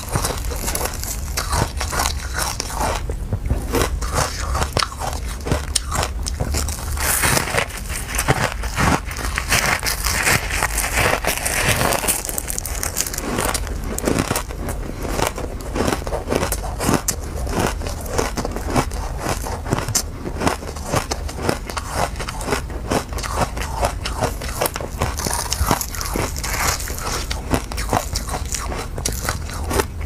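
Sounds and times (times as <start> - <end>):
person chewing crunchy ice: 0.0 - 30.0.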